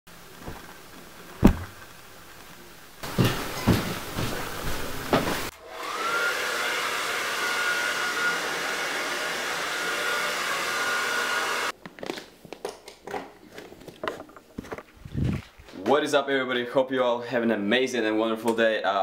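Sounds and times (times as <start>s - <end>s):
hair dryer whine: 3.2s - 11.7s.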